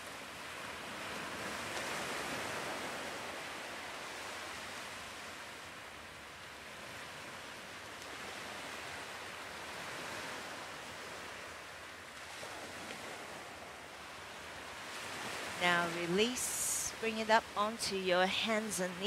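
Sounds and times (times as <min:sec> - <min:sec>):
ocean waves washing: 0:00.0 - 0:19.0.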